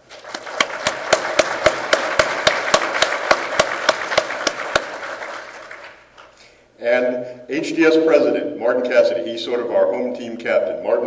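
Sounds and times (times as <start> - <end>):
audience applauding: 0.1 - 6.3
close loud hand clapping: 0.1 - 6.4.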